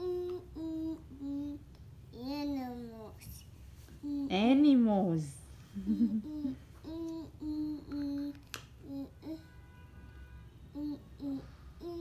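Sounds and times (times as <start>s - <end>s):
child humming: 0.0s - 1.7s, 4.0s - 4.4s, 5.9s - 9.5s, 10.7s - 12.0s.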